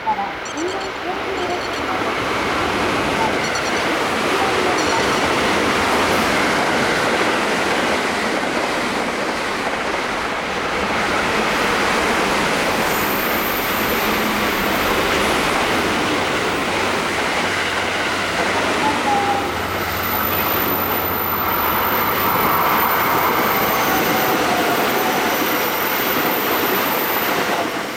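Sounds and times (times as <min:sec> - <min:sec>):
train wheels rushing on rails: 0:00.0 - 0:27.9.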